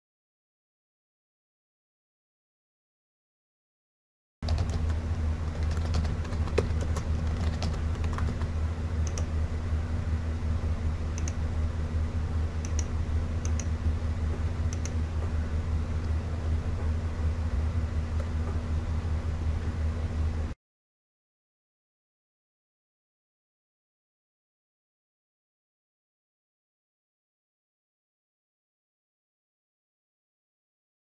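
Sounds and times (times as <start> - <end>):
computer keyboard typing: 4.4 - 9.3
low electrical hum: 4.4 - 20.6.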